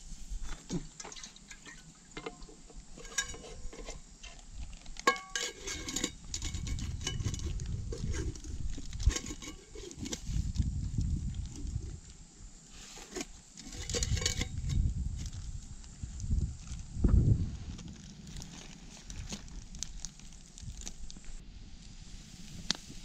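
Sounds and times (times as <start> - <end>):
metal pot and lid clinking: 1.5 - 4.4, 5.0 - 8.4, 13.6 - 14.8
low rumbling handling noise: 13.0 - 21.4.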